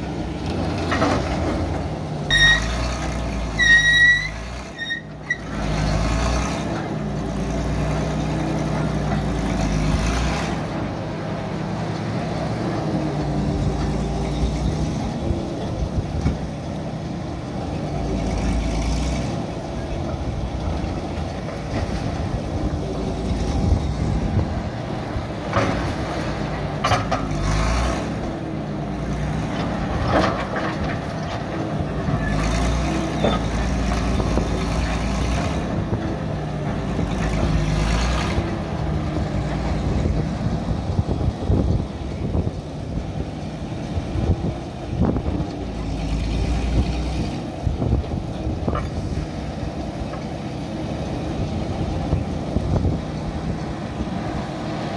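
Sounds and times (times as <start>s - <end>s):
power shovel engine running: 0.0s - 54.9s.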